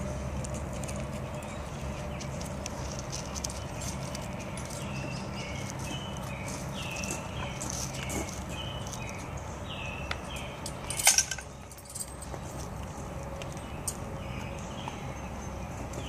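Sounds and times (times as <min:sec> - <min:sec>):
metal bridle jingling: 0:02.8 - 0:05.3, 0:10.6 - 0:12.7.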